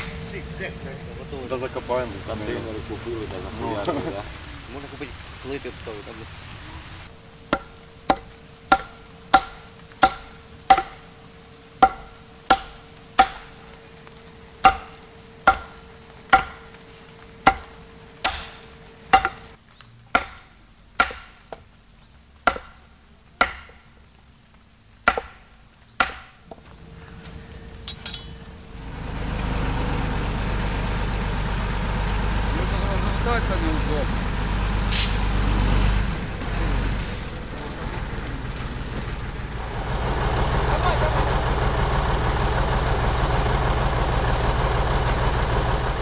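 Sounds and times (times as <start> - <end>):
hammer striking hot steel: 0.0 - 0.4, 7.5 - 11.2, 11.8 - 21.6, 22.5 - 24.0, 25.0 - 26.5, 27.9 - 28.5
metallic clatter: 0.0 - 0.5, 11.8 - 13.9, 17.4 - 19.5, 27.8 - 28.6
low engine rumble: 0.0 - 46.0.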